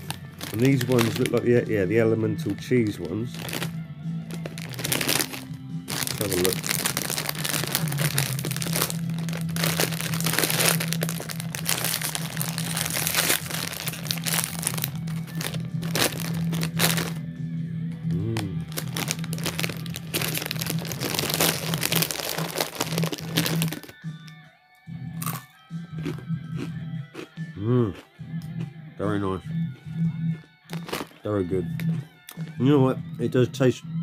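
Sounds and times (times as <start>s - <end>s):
bread chips crunching: 0.0s - 1.7s, 2.4s - 17.2s, 18.1s - 24.0s, 25.2s - 27.3s, 30.7s - 32.0s
plastic snack bag crinkling: 0.0s - 1.8s, 2.4s - 17.2s, 18.2s - 24.0s, 30.7s - 31.3s
background music: 0.0s - 34.0s.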